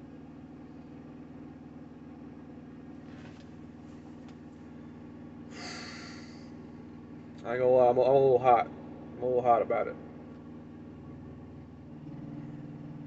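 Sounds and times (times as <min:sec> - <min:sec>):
truck engine idling: 0:00.0 - 0:13.0
nose exhale: 0:05.5 - 0:06.5.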